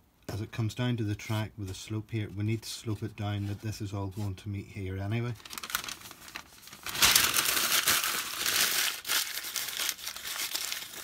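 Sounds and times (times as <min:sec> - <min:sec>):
newspaper being crumpled: 0:05.2 - 0:11.0.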